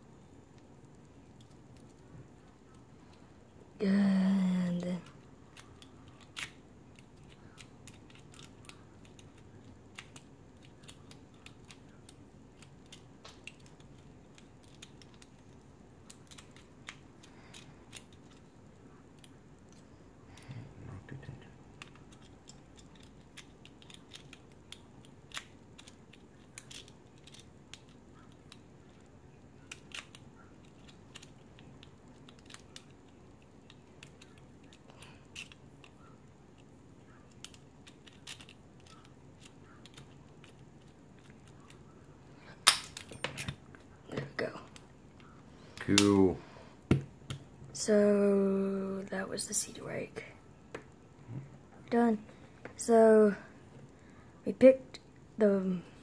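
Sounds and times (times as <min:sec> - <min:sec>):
lock pick clicking and scratching: 0:05.0 - 0:19.8, 0:21.7 - 0:41.9.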